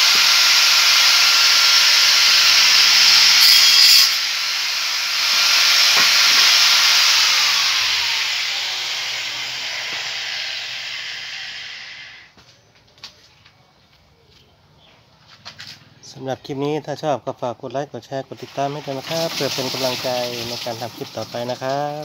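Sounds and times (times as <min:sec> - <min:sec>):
angle grinder grinding steel: 0:00.0 - 0:12.3.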